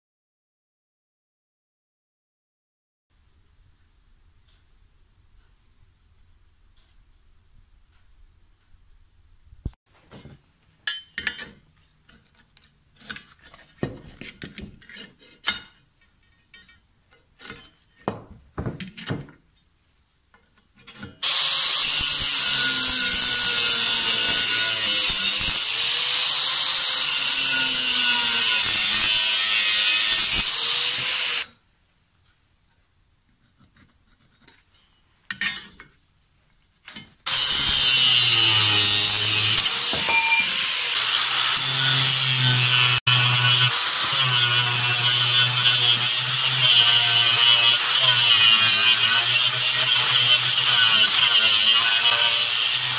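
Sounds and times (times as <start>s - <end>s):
angle grinder cutting steel: 21.2s - 31.5s, 37.3s - 52.9s.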